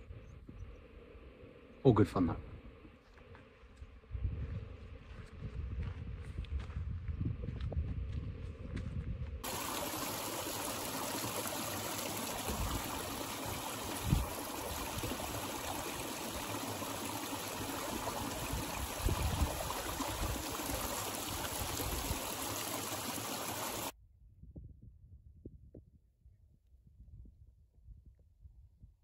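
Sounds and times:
stream splashing and trickling: 9.4s - 24.0s.

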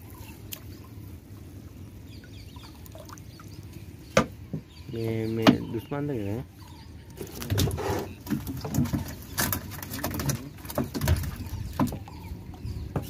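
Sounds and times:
water splashing and dripping: 0.0s - 1.5s, 2.2s - 4.4s, 7.5s - 13.0s
wet net hauled over boat edge: 0.0s - 13.0s.

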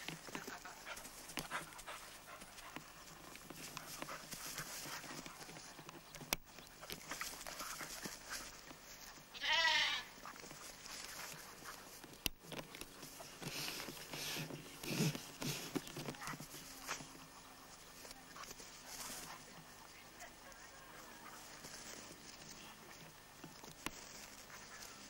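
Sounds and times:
soft scuffling and rustling: 0.0s - 25.0s
lamb bleating: 9.3s - 10.1s.

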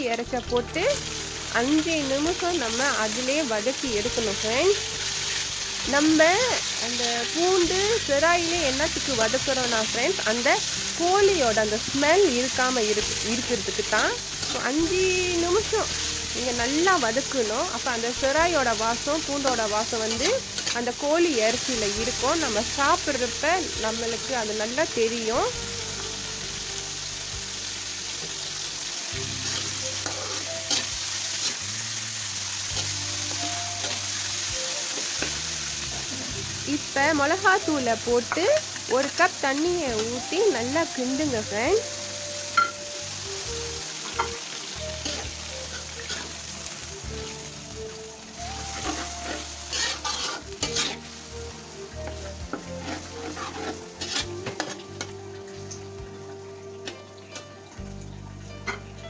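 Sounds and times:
chicken sizzling in hot oil: 0.0s - 59.0s
metal spatula scraping wok: 4.0s - 25.5s, 28.8s - 55.2s
metal spatula scraping a wok: 14.3s - 17.6s, 19.4s - 23.3s, 29.1s - 31.7s, 44.0s - 51.4s, 52.0s - 55.2s.

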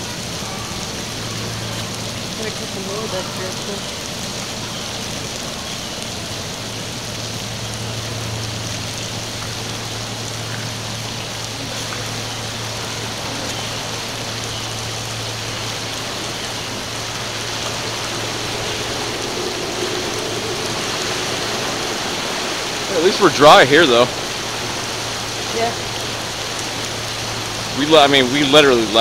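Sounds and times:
rain hissing: 0.0s - 29.0s
water washing against rocks: 0.9s - 29.0s
steady low hum: 6.9s - 27.9s.

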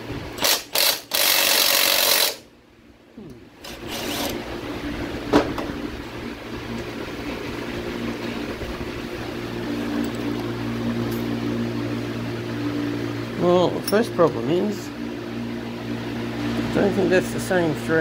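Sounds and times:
cordless power tool running: 0.3s - 2.5s, 3.6s - 13.7s.

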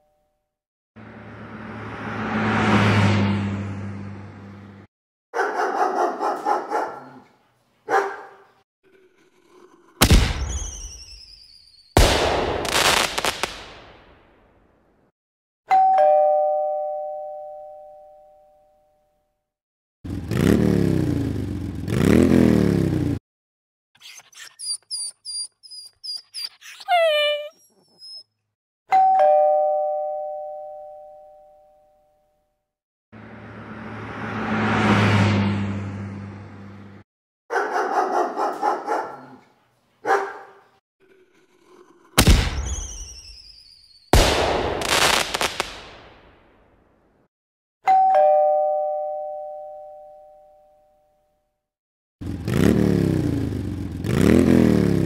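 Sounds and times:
engine revving: 1.0s - 4.9s, 20.1s - 23.2s, 33.2s - 37.0s, 52.2s - 55.0s
dog barking: 5.3s - 8.6s, 37.5s - 40.8s
high falling whistling tones: 10.5s - 12.0s, 42.7s - 44.1s
two-tone doorbell chime: 15.7s - 19.2s, 28.9s - 32.3s, 47.9s - 51.3s
short high-pitched chirps: 24.0s - 28.2s.

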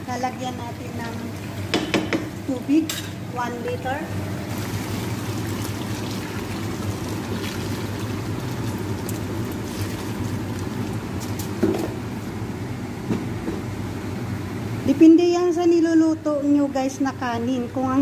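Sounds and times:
water pouring into pot: 4.3s - 11.5s.

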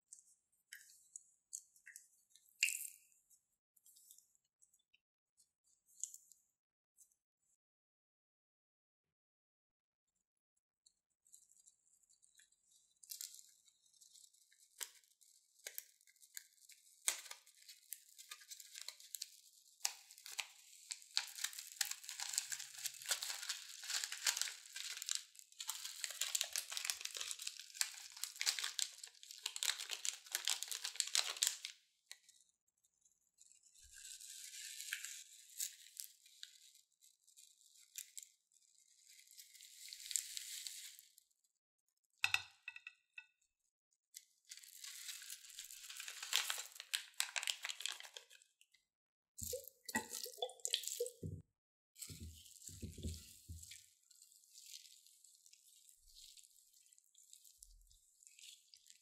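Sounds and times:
plastic bag crinkling: 17.1s - 31.7s, 44.5s - 48.4s
foam beads crackling: 19.9s - 31.7s, 44.6s - 48.3s.

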